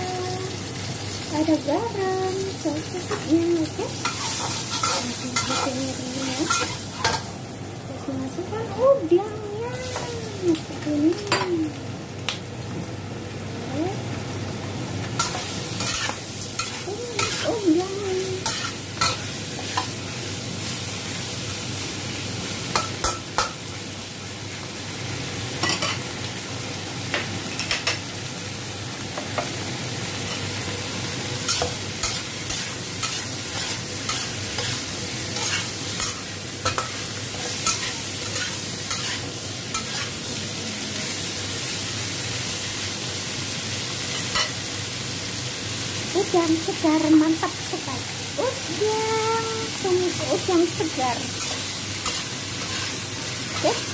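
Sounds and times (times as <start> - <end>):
shrimp sizzling in hot oil: 0.0 - 53.9
metal spatula scraping a wok: 4.0 - 5.8, 35.4 - 40.1.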